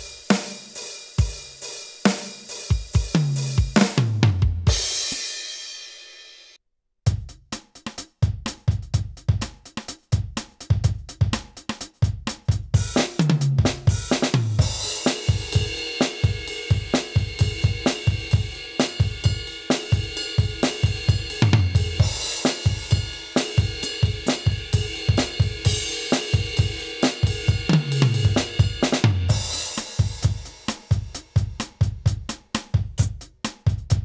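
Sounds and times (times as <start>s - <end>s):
electronic drum groove: 0.0s - 5.4s, 7.1s - 34.0s
tom fill and cymbal crash: 14.0s - 31.0s.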